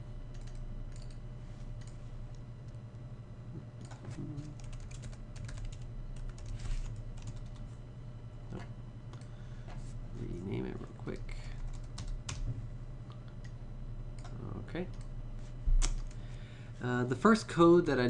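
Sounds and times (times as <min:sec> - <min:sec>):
low electrical hum: 0:00.0 - 0:18.0
computer keyboard typing: 0:00.3 - 0:01.2, 0:03.8 - 0:07.6, 0:11.6 - 0:12.4, 0:15.8 - 0:16.2.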